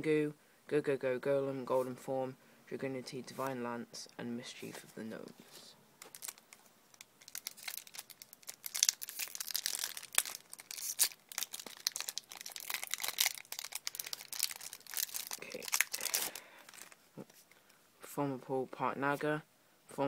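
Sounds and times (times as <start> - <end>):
foil wrapper crinkling and tearing: 6.0 - 17.0.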